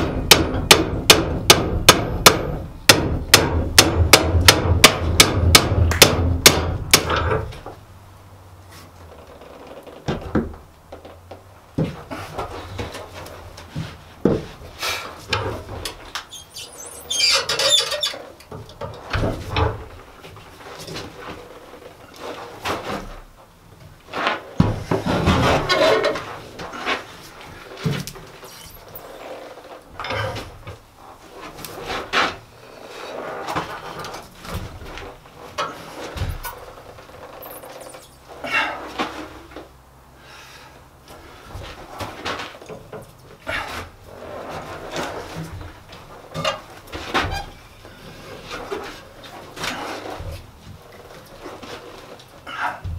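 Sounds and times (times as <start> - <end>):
steel rod scraping and clanking: 16.4 - 18.4, 25.0 - 27.1.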